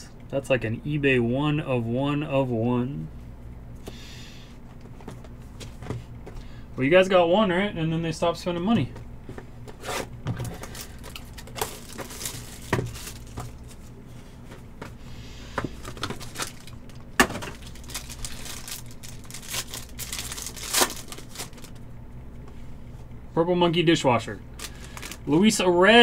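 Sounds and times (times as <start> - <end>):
packaging crinkled and torn: 10.6 - 13.8, 15.8 - 21.8, 24.5 - 25.4.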